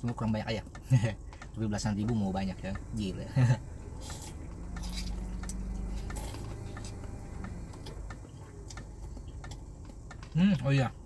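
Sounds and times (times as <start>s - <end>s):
low steady hum: 0.0s - 11.0s
chewing: 3.8s - 10.3s.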